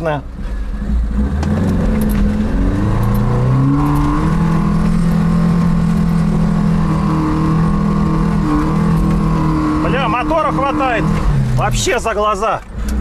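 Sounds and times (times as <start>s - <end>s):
car engine pulling uphill: 0.0s - 13.0s.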